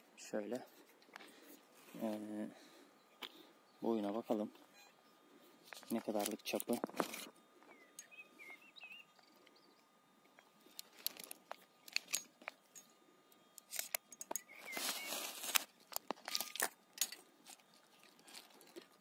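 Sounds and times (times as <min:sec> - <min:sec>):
crinkling: 0:05.4 - 0:07.4, 0:10.3 - 0:12.8, 0:13.5 - 0:19.0
small clicks and rustling: 0:05.6 - 0:08.2, 0:10.3 - 0:19.0.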